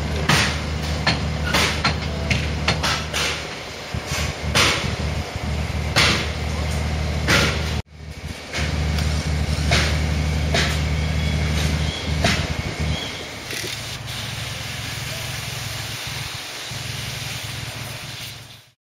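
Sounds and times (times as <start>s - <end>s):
engine generator running: 0.0s - 18.8s
sharp metal knocks: 0.2s - 5.0s, 6.0s - 6.4s, 7.3s - 7.8s, 9.7s - 10.9s, 11.6s - 12.6s.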